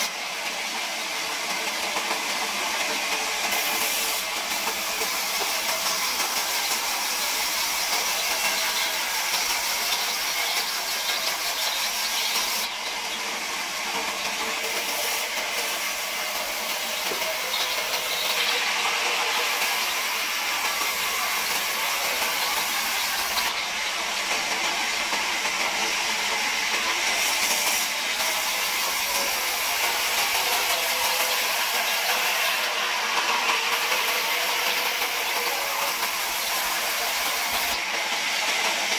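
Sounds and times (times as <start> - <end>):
band saw cutting wood: 2.0 - 38.9.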